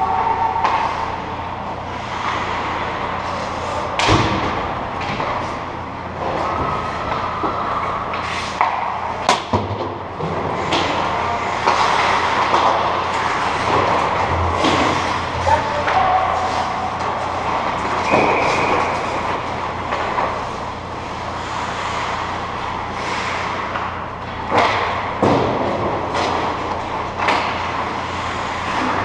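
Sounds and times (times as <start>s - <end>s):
cracks of sticks and puck: 0.2s - 1.2s, 6.2s - 20.6s, 23.0s - 29.0s
skate blades scraping ice: 10.6s - 23.9s.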